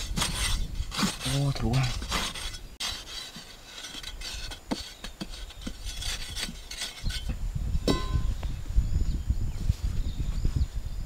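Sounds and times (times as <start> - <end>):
hand scraping sandy soil: 0.0 - 7.3.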